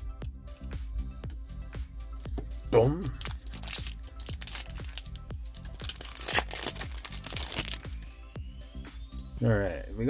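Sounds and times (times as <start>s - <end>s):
electronic music with steady beat: 0.0s - 10.0s
foil wrapper crinkling and tearing: 3.2s - 7.9s.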